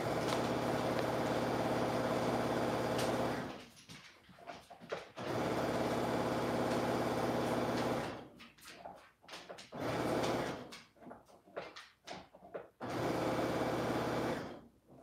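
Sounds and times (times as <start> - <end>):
sewing machine stitching: 0.0 - 3.6, 5.2 - 8.3, 9.7 - 10.7, 12.8 - 14.6.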